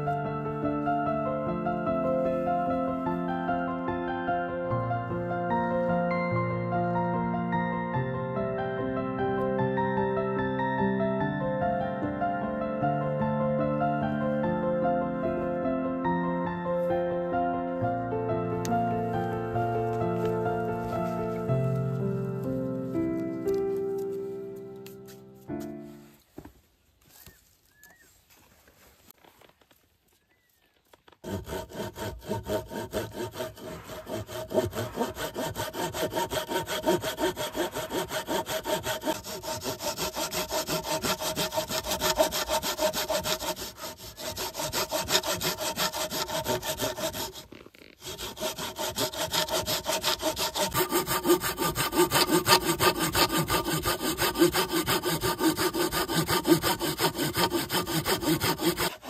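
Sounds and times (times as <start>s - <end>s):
saw cutting wood: 31.2s - 59.0s.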